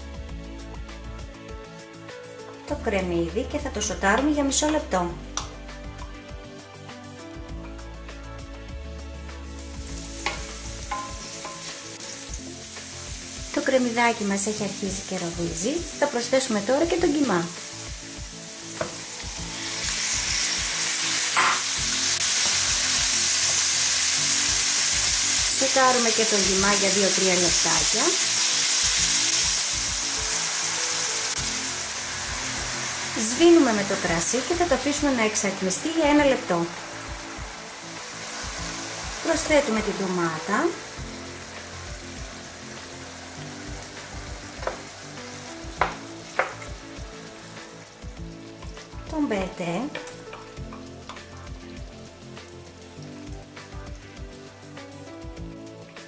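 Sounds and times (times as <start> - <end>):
meat sizzling in hot oil: 0.0 - 56.0
wooden spoon knocking on pan: 10.2 - 11.7, 18.8 - 19.0, 44.6 - 44.9, 45.7 - 46.8.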